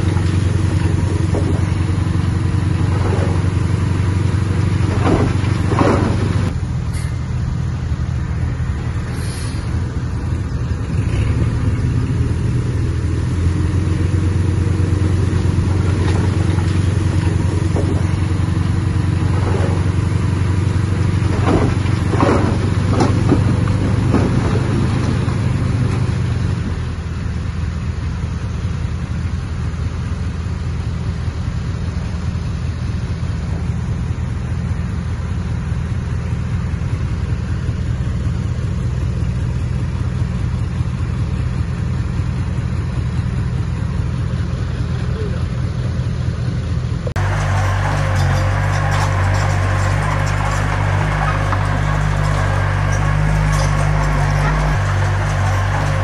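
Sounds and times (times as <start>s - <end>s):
diesel engine of heavy machinery: 0.0s - 56.0s
knocks: 4.9s - 6.5s.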